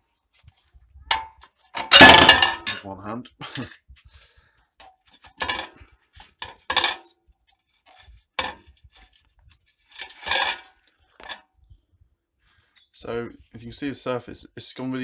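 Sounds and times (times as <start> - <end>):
metal clinks and knocks: 1.1 - 2.9, 4.8 - 7.2, 7.9 - 9.2, 9.9 - 11.4.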